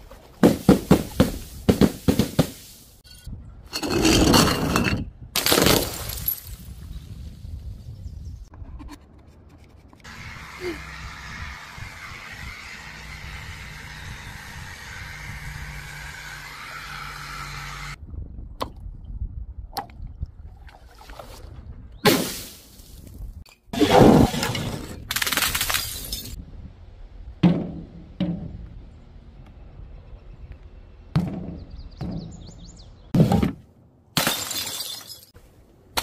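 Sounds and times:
sharp knocks and impacts: 0.4s - 2.6s, 27.4s - 28.8s, 31.1s - 33.7s.

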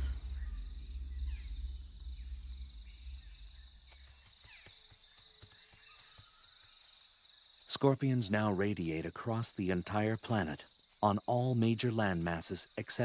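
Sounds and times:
low rumble: 0.0s - 4.0s
high-pitched insect trill: 0.0s - 13.0s.

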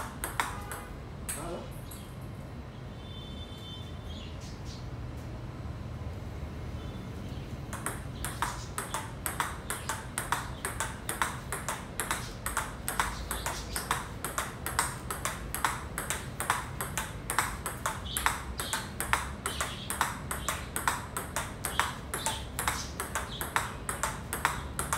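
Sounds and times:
table tennis ball clicks: 0.0s - 2.0s, 7.7s - 24.9s.

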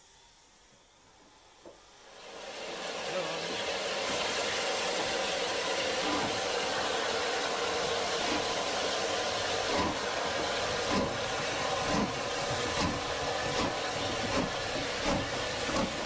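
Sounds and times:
steam locomotive hiss: 0.0s - 16.0s.

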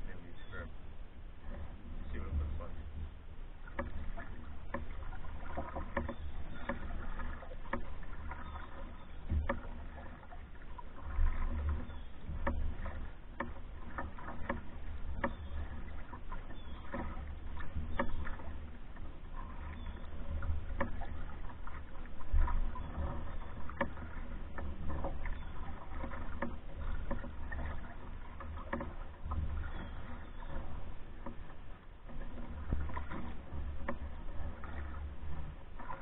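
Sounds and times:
steady low rumble: 0.0s - 5.0s
paddle strokes in water: 0.0s - 36.0s
water swishing along hull: 0.0s - 36.0s
light knocks and clicks: 1.5s - 10.2s, 11.0s - 36.0s.

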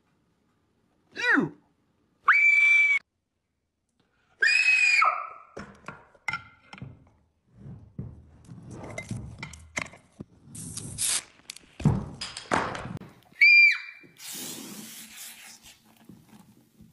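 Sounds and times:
high-pitched scream: 2.3s - 3.0s, 4.4s - 5.5s, 13.4s - 14.0s.

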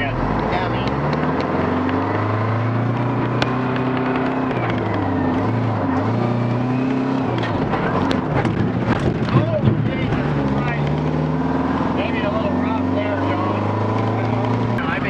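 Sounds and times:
diesel truck engine accelerating: 0.0s - 15.0s.

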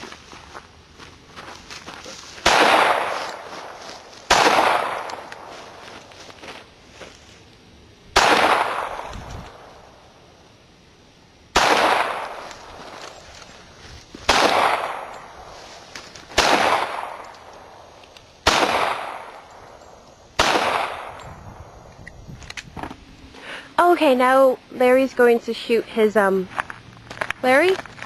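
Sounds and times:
pistol shots: 2.4s - 3.5s, 4.3s - 5.5s, 8.2s - 9.7s, 11.5s - 12.5s, 14.3s - 15.4s, 16.3s - 17.7s, 18.4s - 19.5s, 20.4s - 21.2s.

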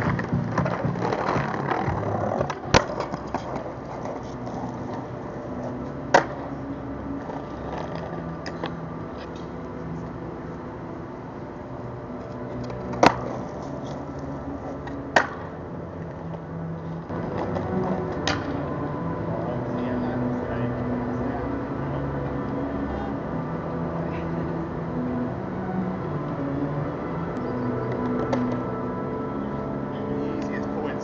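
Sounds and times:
skateboard clacks on concrete: 0.0s - 4.2s, 6.1s - 6.4s, 14.8s - 15.5s
low city hum: 0.0s - 31.0s.

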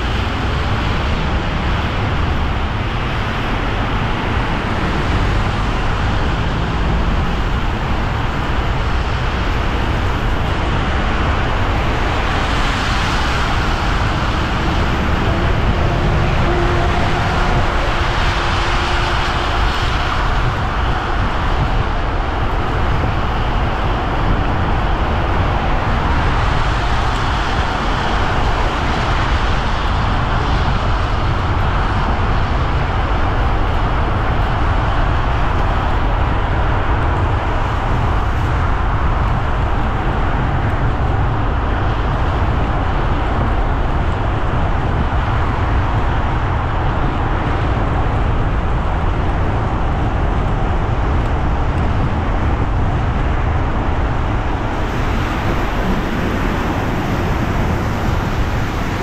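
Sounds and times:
car engine and road hum: 0.0s - 59.0s
rain: 0.0s - 59.0s.

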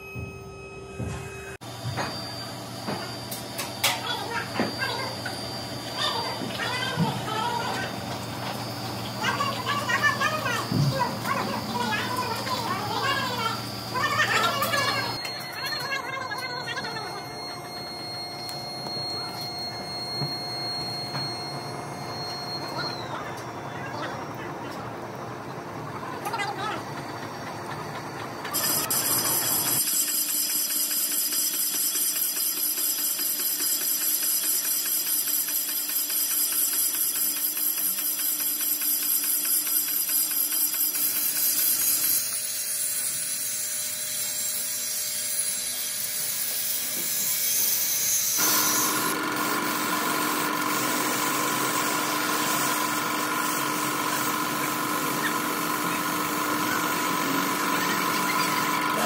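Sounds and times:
steady machine hum: 0.0s - 59.0s
power tool running: 0.8s - 59.0s
angle grinder on metal: 9.2s - 17.4s, 40.5s - 59.0s
paint spray gun hissing: 48.4s - 58.7s.

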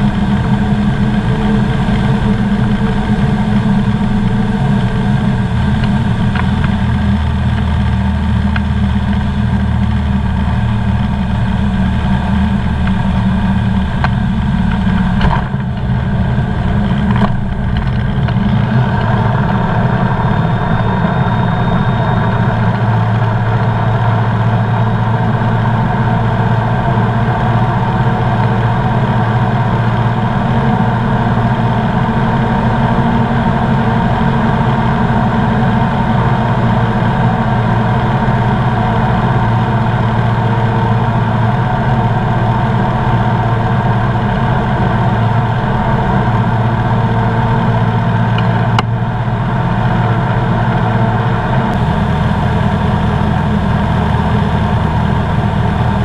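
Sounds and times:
aircraft engine and propeller drone: 0.0s - 56.0s.

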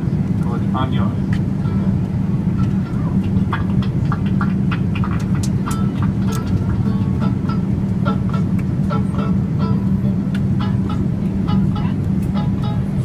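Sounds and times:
airliner cabin drone: 0.0s - 13.0s
acoustic guitar strumming: 5.4s - 13.0s.

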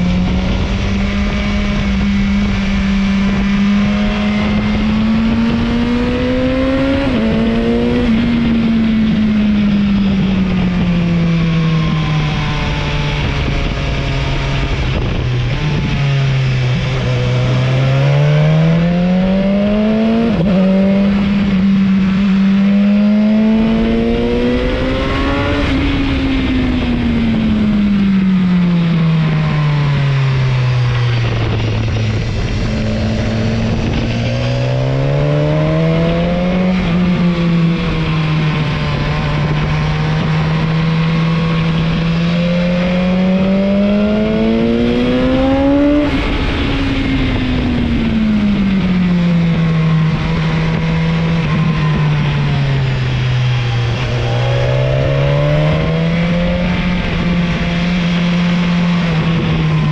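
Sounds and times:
motorcycle engine revving: 0.0s - 59.9s
steady rushing noise: 20.2s - 59.9s.

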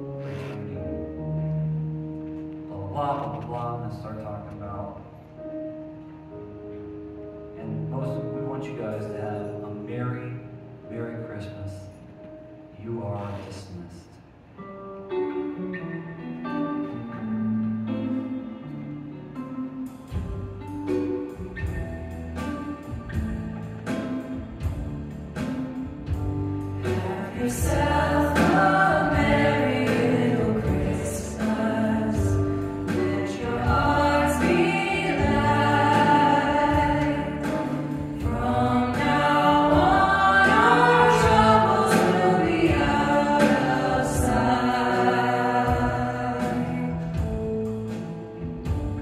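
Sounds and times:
guitar: 0.0s - 49.0s
keyboard: 0.0s - 49.0s
group of voices singing: 26.8s - 47.2s.

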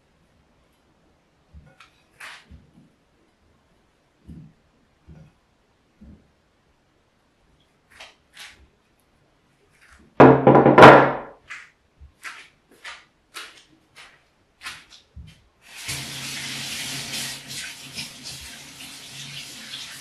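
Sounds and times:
tap running water: 15.6s - 20.0s.

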